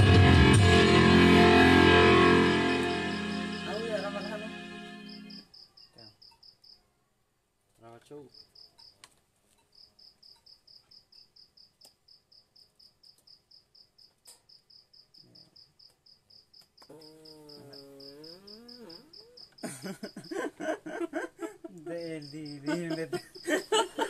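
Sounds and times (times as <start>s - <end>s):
cricket chirping: 2.5s - 7.0s, 8.1s - 24.0s
laughter: 19.6s - 24.0s.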